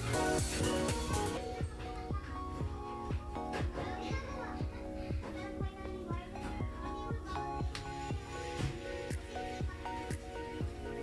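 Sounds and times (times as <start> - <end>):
electronic music with kick drums: 0.0 - 11.0.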